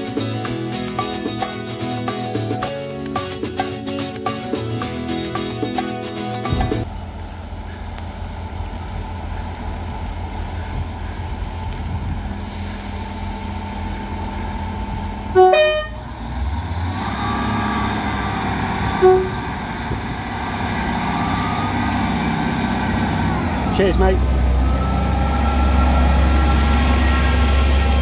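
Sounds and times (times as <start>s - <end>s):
diesel train engine rumble: 0.0s - 28.0s
train horn: 15.3s - 16.1s, 18.9s - 19.5s.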